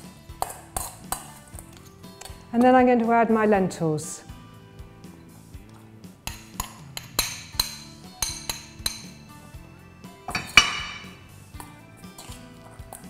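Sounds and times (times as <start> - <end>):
metal spoon clinking against bowls: 0.4 - 1.4, 6.2 - 9.2, 10.3 - 13.0
spoon clanging in steel bowl: 6.2 - 9.2, 10.3 - 11.3.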